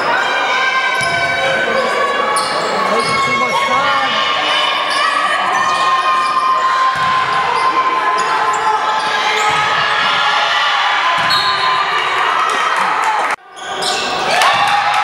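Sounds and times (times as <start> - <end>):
people calling out: 0.0 - 13.4
shoes squeaking on court: 1.8 - 4.1, 13.5 - 14.2
basketball bouncing: 6.9 - 7.6.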